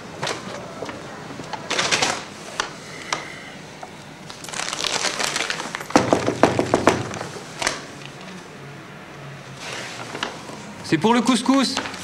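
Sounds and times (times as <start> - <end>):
paper bag rustling and crinkling: 4.3 - 7.8.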